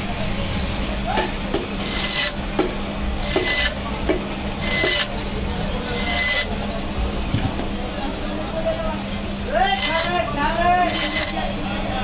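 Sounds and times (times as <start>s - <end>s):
band saw humming: 1.4s - 7.0s, 9.5s - 12.0s
saw blade rasping through fish: 4.6s - 5.1s, 9.7s - 10.2s, 10.9s - 11.5s.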